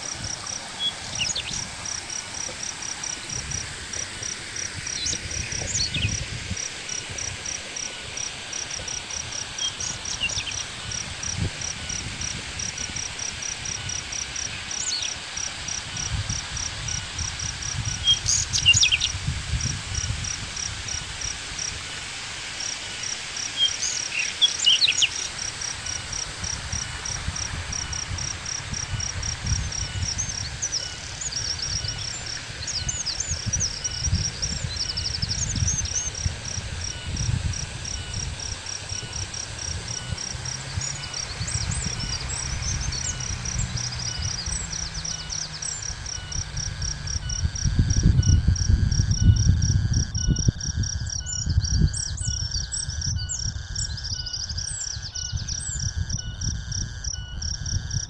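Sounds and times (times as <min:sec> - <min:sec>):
insect pulsing trill: 0:00.0 - 0:58.0
birds chirping and whistling: 0:00.2 - 0:01.7, 0:04.8 - 0:06.3, 0:08.9 - 0:12.0, 0:13.7 - 0:15.2, 0:17.9 - 0:19.2, 0:23.6 - 0:26.0, 0:28.8 - 0:48.5, 0:49.2 - 0:57.7.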